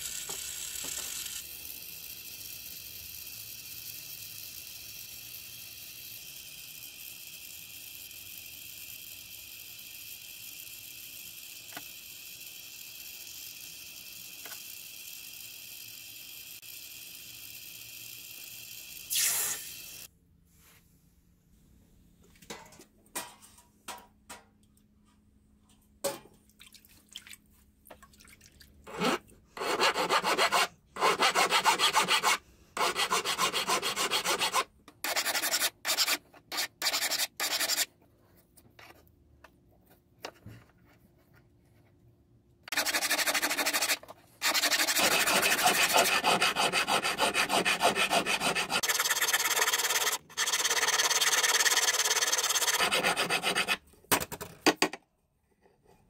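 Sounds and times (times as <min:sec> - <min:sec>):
hand file rasping on metal tube: 0:28.9 - 0:37.9, 0:42.7 - 0:53.8.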